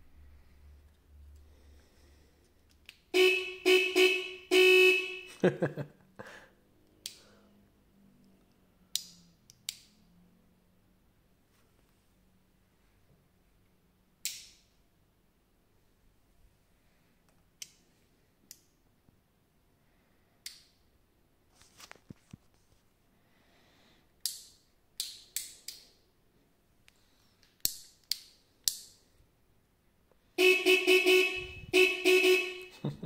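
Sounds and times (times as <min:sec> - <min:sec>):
electric horn blasts: 0:03.1 - 0:05.4, 0:30.4 - 0:32.8.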